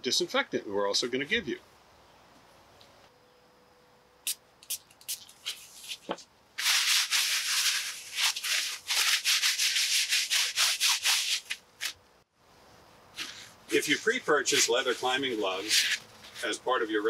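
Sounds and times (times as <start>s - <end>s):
gloved hands rubbing together: 4.3s - 12.0s, 13.1s - 16.6s
disposable gloves rustling: 4.7s - 12.0s, 13.1s - 13.8s.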